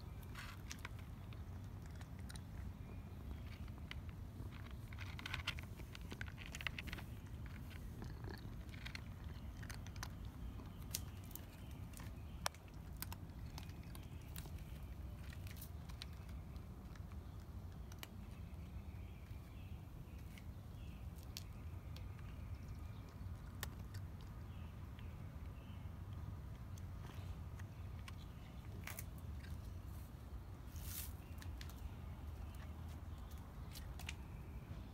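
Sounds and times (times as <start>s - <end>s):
cat chewing crunchily: 0.1s - 18.4s, 21.9s - 24.7s, 26.4s - 29.9s.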